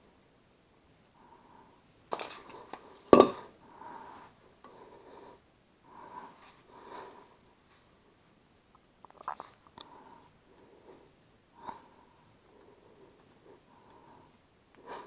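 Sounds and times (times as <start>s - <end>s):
metal clinks: 3.0s - 3.4s
sharp metallic clank: 3.1s - 3.4s.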